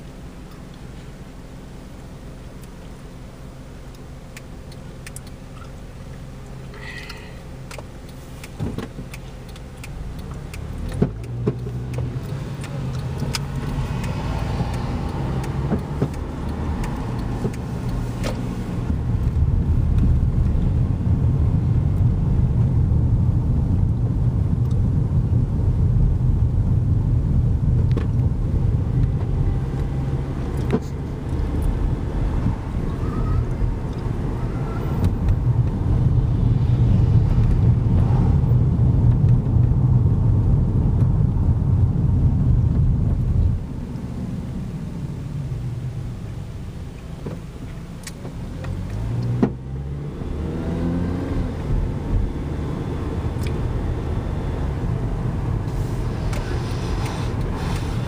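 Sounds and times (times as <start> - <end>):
car engine and road rumble: 0.0 - 58.0
sharp clicks: 3.9 - 20.6.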